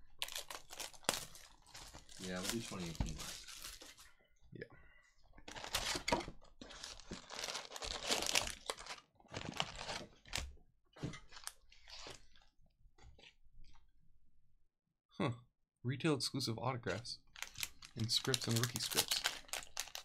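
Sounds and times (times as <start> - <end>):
plastic wrappers crinkling: 0.1 - 4.2, 5.5 - 10.5, 11.2 - 12.4, 17.3 - 20.0.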